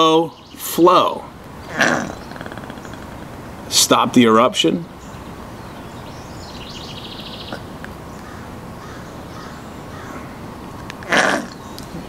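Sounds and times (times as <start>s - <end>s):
outdoor background noise: 0.0s - 12.0s
bird rattling call: 1.7s - 3.5s.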